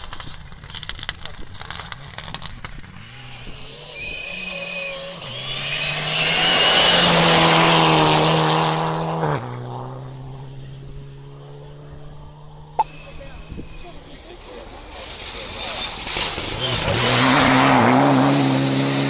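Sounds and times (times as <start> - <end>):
rally car engine at full throttle: 0.0 - 19.0.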